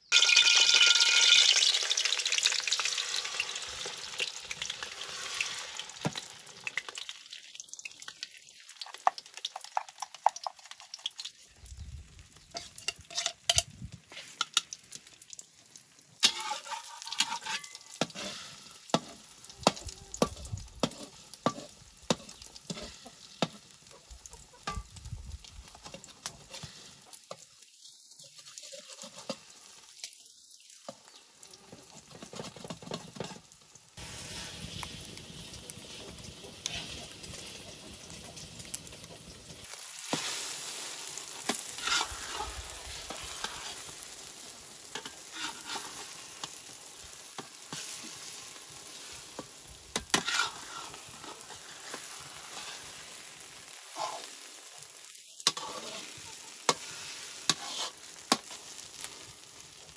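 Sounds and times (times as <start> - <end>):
metal spatula scraping wok: 0.0 - 6.4, 12.4 - 14.6, 16.2 - 23.8, 25.8 - 27.1, 28.3 - 29.8, 34.0 - 38.5, 40.0 - 54.5, 55.4 - 59.1
eggs sizzling in oil: 0.0 - 59.9.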